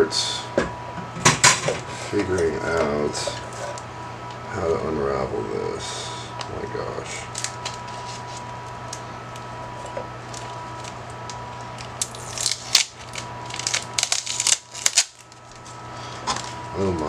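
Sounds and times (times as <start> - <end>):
plastic wrap crinkling: 7.2 - 17.0.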